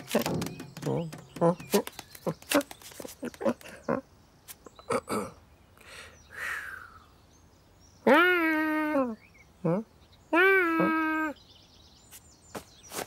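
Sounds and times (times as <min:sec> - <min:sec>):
person chirping and clicking: 0:00.0 - 0:03.9
person imitating long meow: 0:08.1 - 0:11.4.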